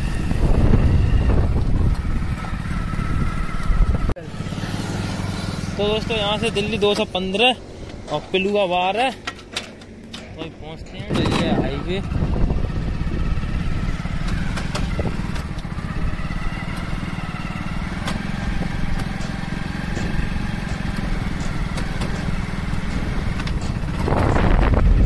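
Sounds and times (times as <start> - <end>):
motorcycle engine running: 0.0 - 25.0
wind and road noise: 0.0 - 25.0.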